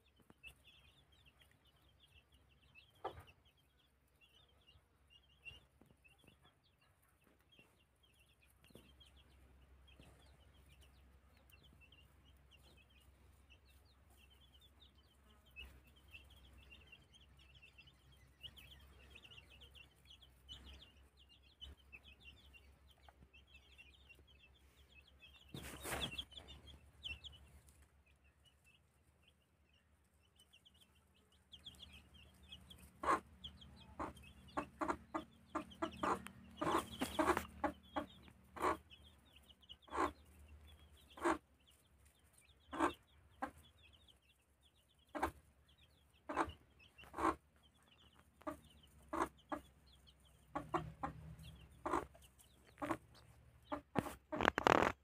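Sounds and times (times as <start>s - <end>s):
hen clucking: 0.0s - 29.4s, 30.3s - 55.0s
chicks peeping: 0.0s - 55.0s.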